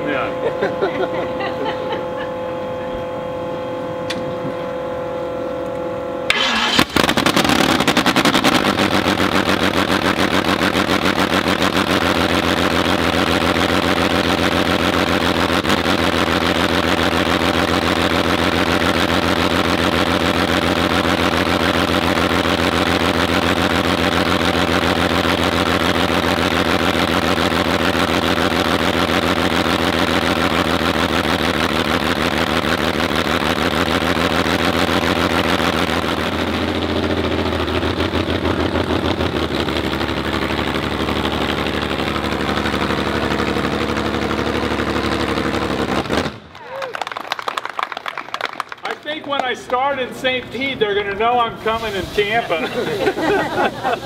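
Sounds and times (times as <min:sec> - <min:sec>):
steady hum: 0:00.0 - 0:46.5
aero engine running: 0:00.0 - 0:54.0.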